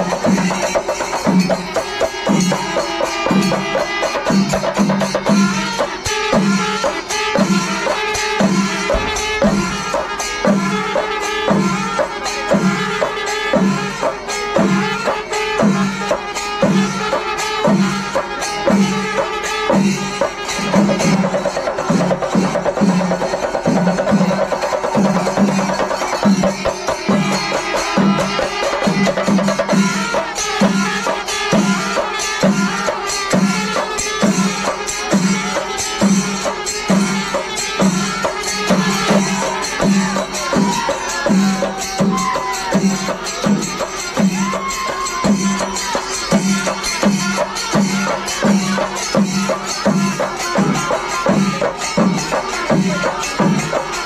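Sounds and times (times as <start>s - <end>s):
rapid drumming: 0.0s - 14.0s, 15.6s - 54.0s
clattering cymbals: 0.0s - 54.0s
low drum beat: 8.9s - 10.1s.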